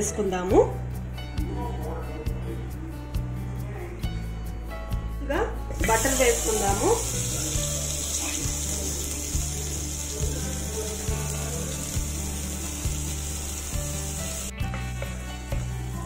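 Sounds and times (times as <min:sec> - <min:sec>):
slow background music with soft beat: 0:00.0 - 0:16.0
butter sizzling in a pot: 0:05.8 - 0:15.9.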